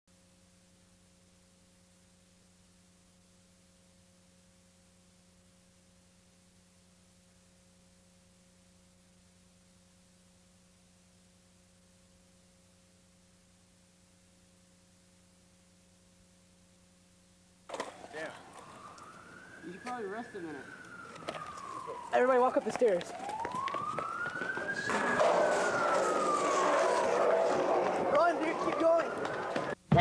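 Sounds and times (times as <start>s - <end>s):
faint electrical hum: 0.1s - 19.6s.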